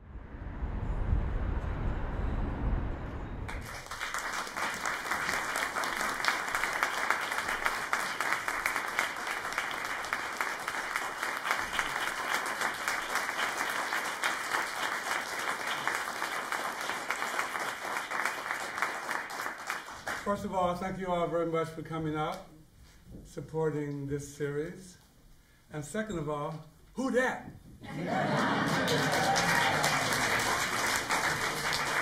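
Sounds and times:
audience applauding: 0:03.5 - 0:20.4, 0:27.9 - 0:32.0.

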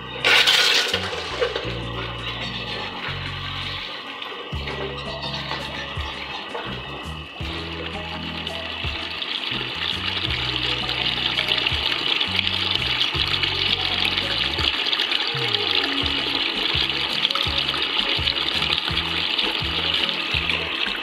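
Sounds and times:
background music with bass line: 0:00.0 - 0:14.8, 0:15.4 - 0:21.0
water gushing into a tub: 0:00.0 - 0:21.0.

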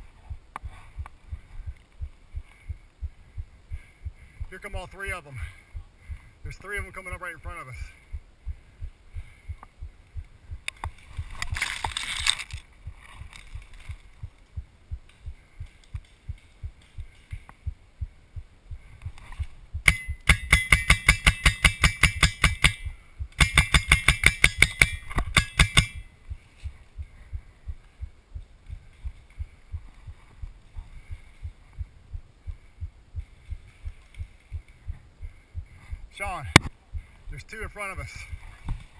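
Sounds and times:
regular low thumps: 0:00.0 - 0:38.9
paintball marker firing rapidly: 0:19.8 - 0:26.0.

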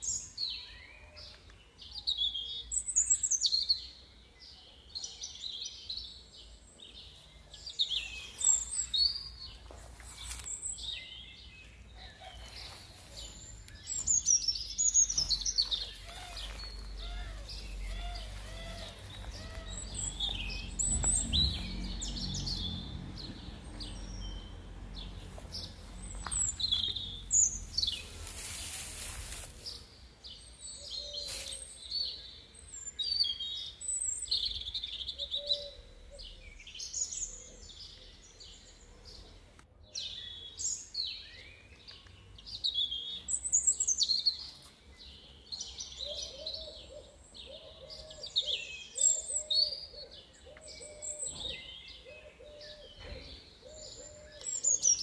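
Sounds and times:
small birds chirping: 0:00.0 - 0:55.0
bird hooting: 0:16.0 - 0:20.5.

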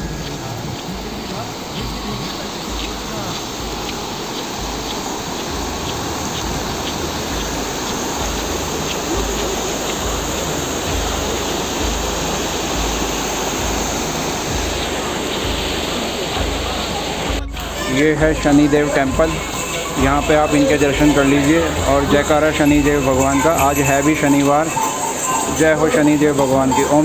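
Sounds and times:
faint regular ticks: 0:00.0 - 0:16.5
heavy rain: 0:00.0 - 0:27.0
running water: 0:00.0 - 0:27.0.

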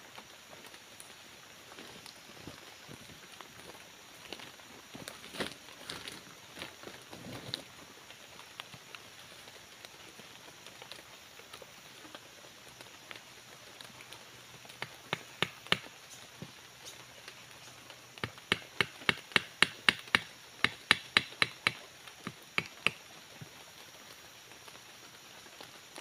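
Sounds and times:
machete chopping wood: 0:14.8 - 0:15.9, 0:18.2 - 0:23.0.

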